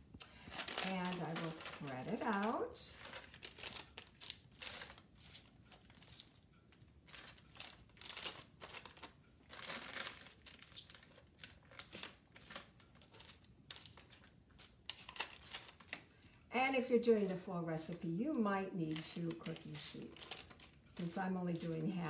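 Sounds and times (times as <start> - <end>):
cereal crinkling on paper: 0.2 - 22.0.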